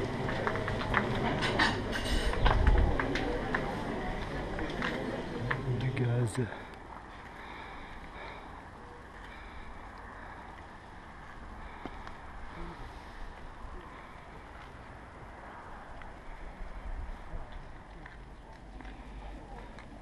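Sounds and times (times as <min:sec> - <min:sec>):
wind on microphone: 0:02.2 - 0:03.2.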